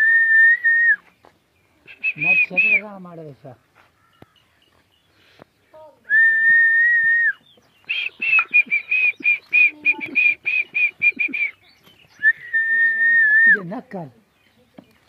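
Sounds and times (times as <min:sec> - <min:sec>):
person whistling: 0:00.0 - 0:01.0, 0:01.9 - 0:02.8, 0:06.1 - 0:11.6, 0:12.2 - 0:13.6.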